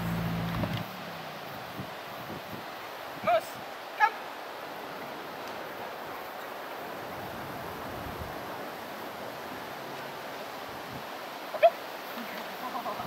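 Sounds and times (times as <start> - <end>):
wind rushing on microphone: 0.0 - 3.8, 6.8 - 11.4.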